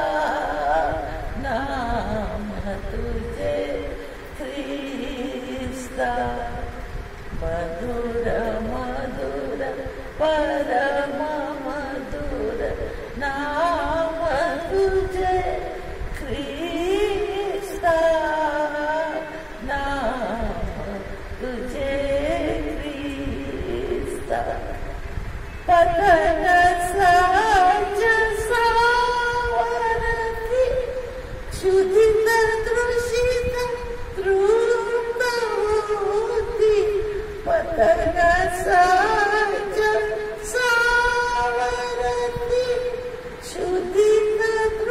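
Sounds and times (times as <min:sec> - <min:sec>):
woman singing a hymn: 0:00.0 - 0:44.9.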